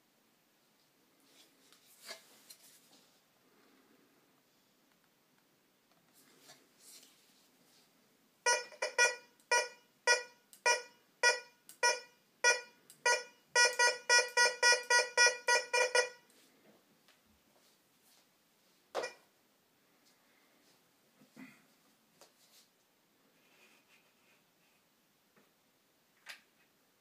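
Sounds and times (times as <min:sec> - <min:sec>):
metal detector beeping: 0:08.5 - 0:16.2.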